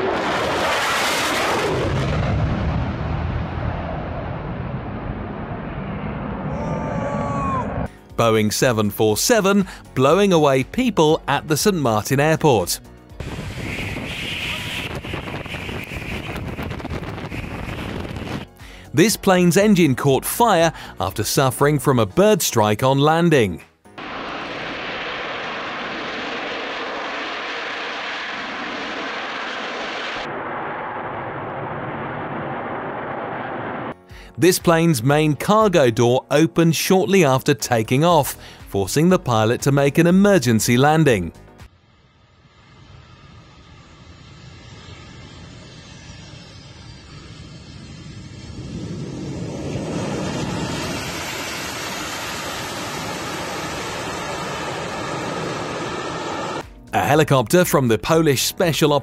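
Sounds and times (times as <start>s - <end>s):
jet engines roaring: 0.0s - 7.9s, 13.2s - 18.6s, 24.0s - 34.1s, 41.7s - 56.6s.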